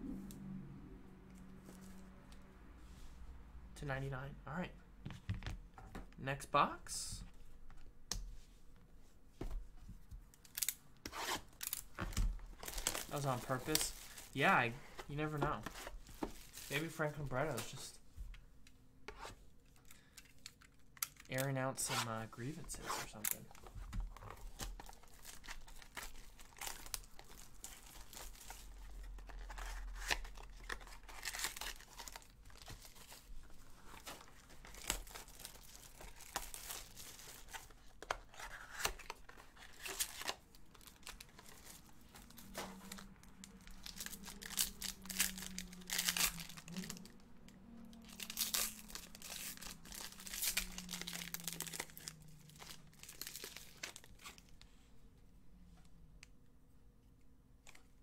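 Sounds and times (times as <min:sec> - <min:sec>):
foil wrapper tearing and crinkling: 0:12.5 - 0:14.5, 0:24.6 - 0:33.2, 0:38.7 - 0:47.1, 0:48.0 - 0:54.5.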